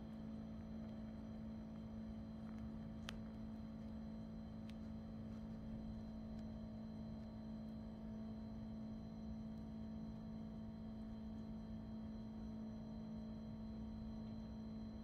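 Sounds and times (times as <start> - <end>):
quiet steady hum: 0.0 - 15.0
faint sharp clicks: 1.7 - 6.6.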